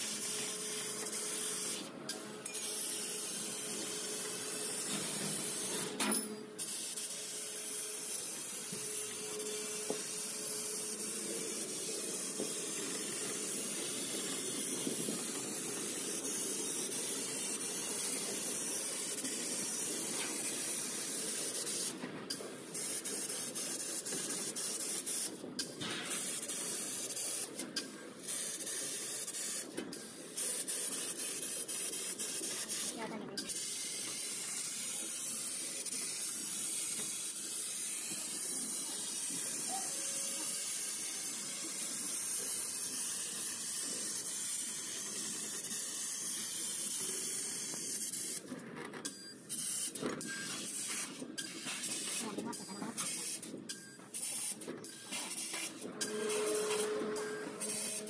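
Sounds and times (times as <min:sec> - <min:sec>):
hiss of gas jet: 0:22.6 - 0:27.6, 0:28.2 - 0:48.4, 0:49.5 - 0:53.5, 0:54.2 - 0:58.0.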